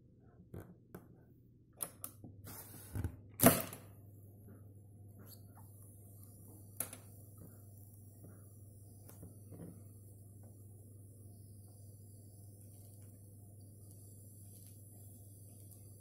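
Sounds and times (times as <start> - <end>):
tape hiss: 4.0 - 16.0.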